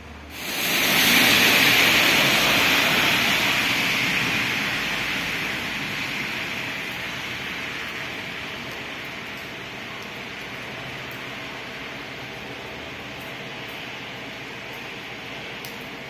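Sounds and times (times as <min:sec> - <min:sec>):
loud rushing noise: 0:00.3 - 0:08.7.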